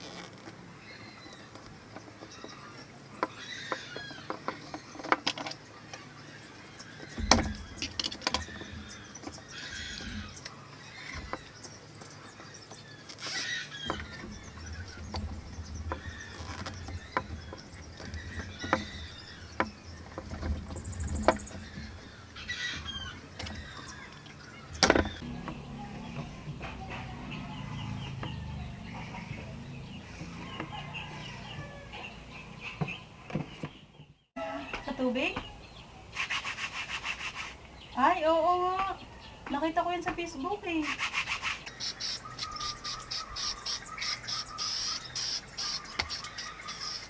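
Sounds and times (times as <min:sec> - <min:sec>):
short squeaks: 0:00.0 - 0:05.5, 0:12.7 - 0:25.4.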